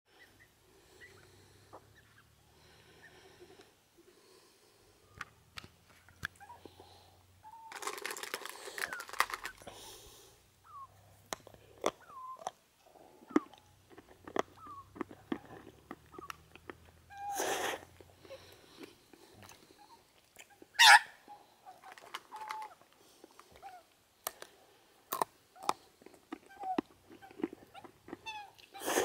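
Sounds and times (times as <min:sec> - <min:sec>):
magpies calling: 0:00.1 - 0:03.5, 0:10.6 - 0:11.0, 0:11.9 - 0:12.5, 0:14.5 - 0:17.4, 0:20.6 - 0:22.8
harsh magpie calls: 0:20.8 - 0:21.2.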